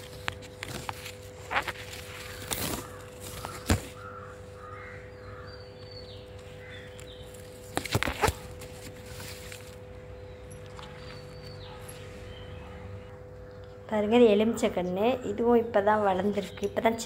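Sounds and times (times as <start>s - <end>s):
bird calling: 1.4s - 8.6s, 10.2s - 15.5s
leaves brushing against phone: 7.4s - 9.8s.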